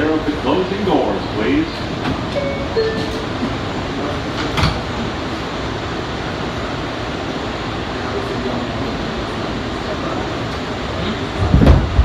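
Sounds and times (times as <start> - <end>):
subway car noise: 0.0 - 12.0
sliding doors closing with thud: 1.8 - 5.1, 11.2 - 12.0.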